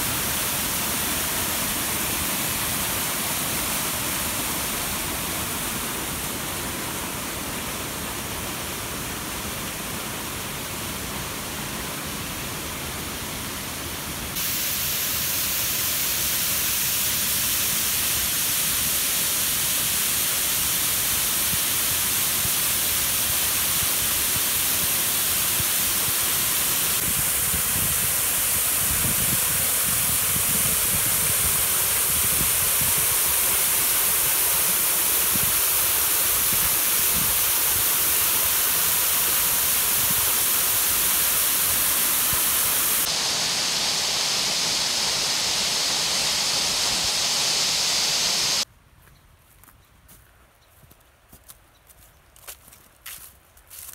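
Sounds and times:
waterfall pouring into pool: 14.4s - 48.6s
creek water rushing over rocks: 20.5s - 48.6s.

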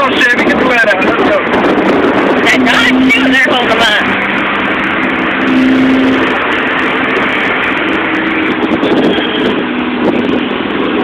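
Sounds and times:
low engine hum: 0.0s - 11.0s.

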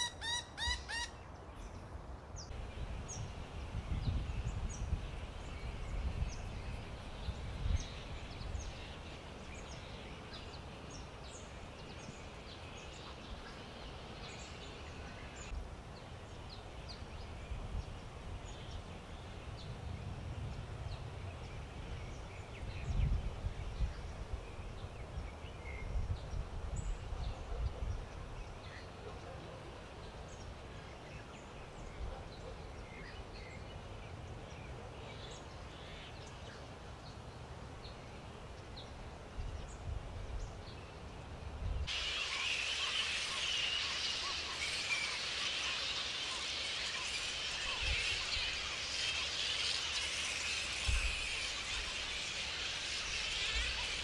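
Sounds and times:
wind buffeting microphone: 2.5s - 9.1s, 17.4s - 28.3s.

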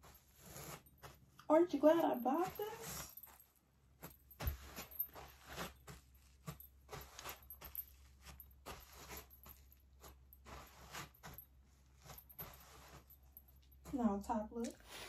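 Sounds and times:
sandal footsteps on artificial turf: 1.8s - 11.5s.

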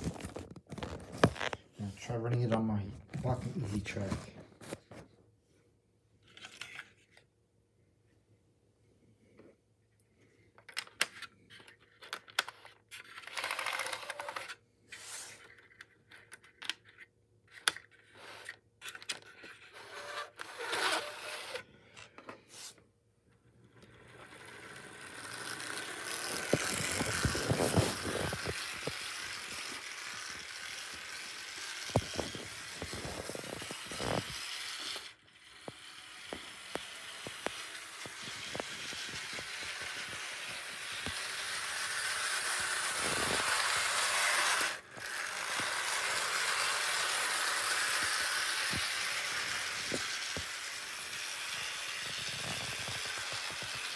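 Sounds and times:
model train clicks and scrapes: 11.5s - 17.0s, 23.8s - 53.9s
model train motor running: 13.2s - 14.5s, 19.7s - 21.6s, 23.7s - 53.9s.

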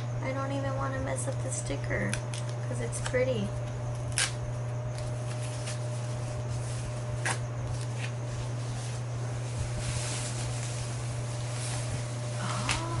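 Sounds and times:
steady low hum: 0.0s - 13.0s
plastic wrap rustling: 4.0s - 13.0s.

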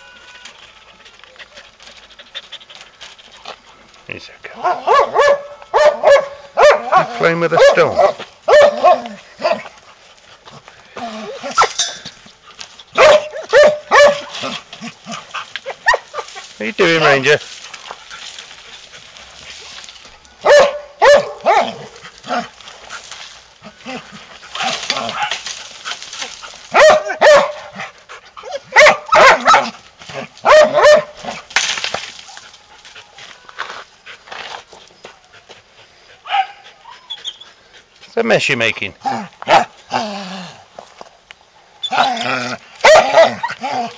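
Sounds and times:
dog barking loudly: 4.6s - 9.6s, 13.0s - 14.3s, 15.7s - 16.3s, 20.4s - 22.0s, 26.7s - 27.8s, 28.5s - 29.8s, 30.4s - 31.2s, 36.2s - 36.6s, 39.0s - 39.7s, 42.8s - 43.5s
dog yelp: 4.6s - 9.6s, 13.0s - 14.3s, 15.7s - 16.3s, 20.4s - 21.9s, 26.7s - 27.7s, 28.4s - 29.7s, 30.4s - 31.2s, 36.2s - 37.4s, 42.8s - 43.9s.

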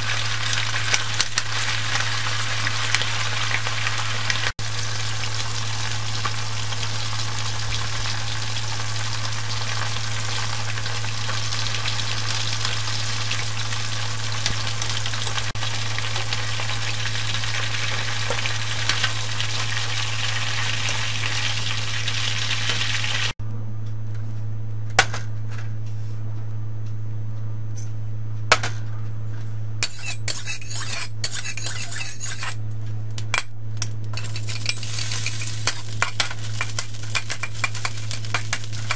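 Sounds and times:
oil sizzling: 0.0s - 23.4s, 34.1s - 38.9s
low hum: 0.0s - 29.9s.

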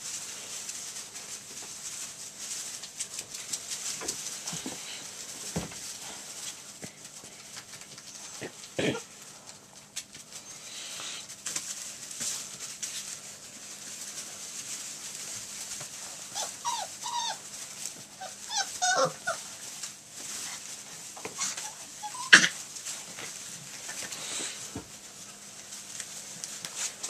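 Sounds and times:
scuffling in wood shavings: 0.0s - 27.0s
puppies yipping and whining: 16.2s - 19.6s, 21.2s - 22.7s.

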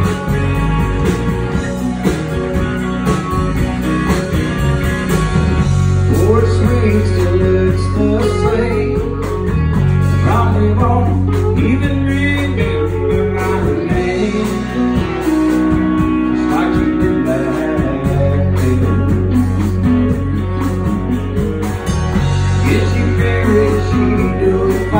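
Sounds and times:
country-rock band playing: 0.0s - 24.9s
man singing: 6.0s - 9.6s, 10.2s - 19.9s, 22.5s - 24.9s.

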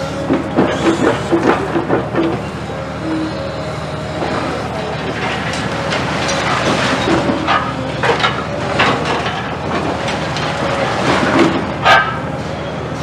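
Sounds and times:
diesel engine running: 0.0s - 13.0s
concrete breaking and debris clattering: 4.9s - 12.2s.

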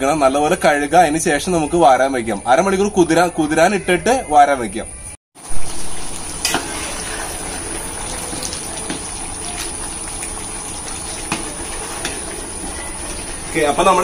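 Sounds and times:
water swishing and splashing: 5.4s - 14.0s.

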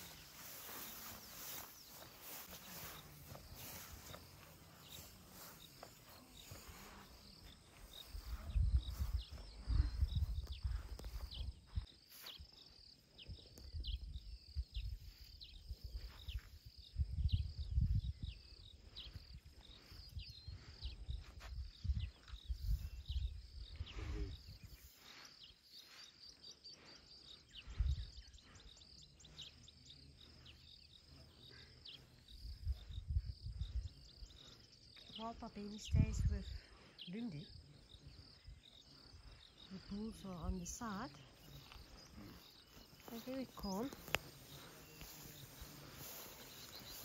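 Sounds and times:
birds chirping: 0.0s - 47.0s
high-pitched insect drone: 41.4s - 47.0s.

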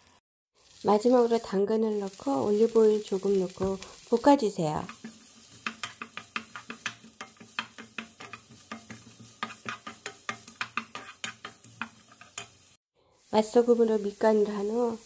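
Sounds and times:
wooden spatula scraping a pan: 4.8s - 14.0s.

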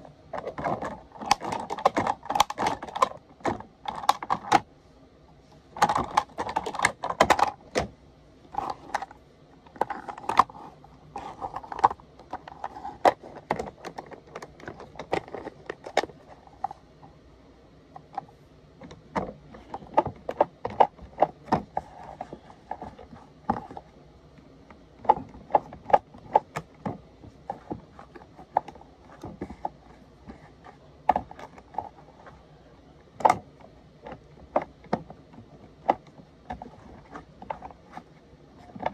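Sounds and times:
plastic toy parts clicking: 0.3s - 4.7s, 5.8s - 7.9s, 8.5s - 16.8s.

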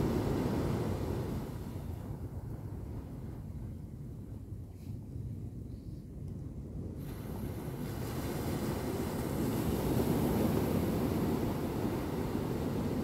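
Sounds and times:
sea surf washing onto beach: 0.0s - 1.9s, 7.0s - 13.0s.

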